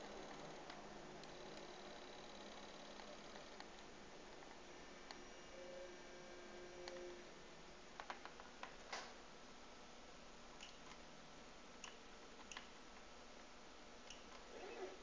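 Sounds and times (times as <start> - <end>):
faint clicks and ticks: 0.0 - 5.2, 11.8 - 14.5.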